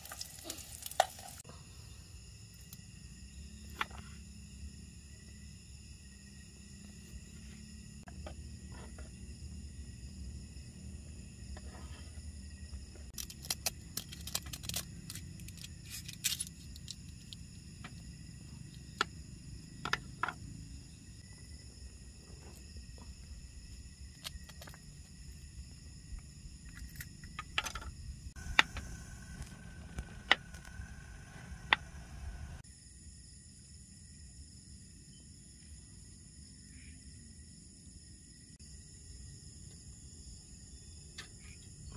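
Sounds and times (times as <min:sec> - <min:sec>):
insects chirring: 0:00.0 - 0:41.9
gas stove burner hissing: 0:28.4 - 0:32.6.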